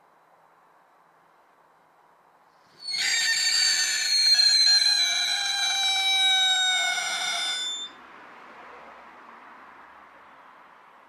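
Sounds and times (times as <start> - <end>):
whistling firework: 2.8 - 8.0.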